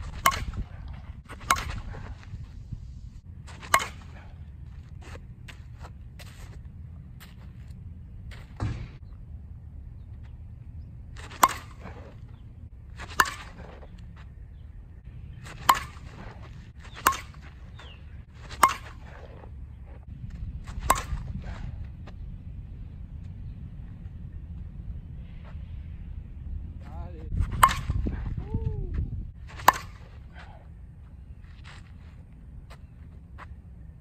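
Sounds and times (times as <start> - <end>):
bat cracking softball: 0.0 - 2.4, 3.4 - 6.2, 11.1 - 14.4, 15.2 - 19.5, 20.6 - 21.7, 27.4 - 28.3, 29.4 - 30.7
low rumble: 0.0 - 34.0.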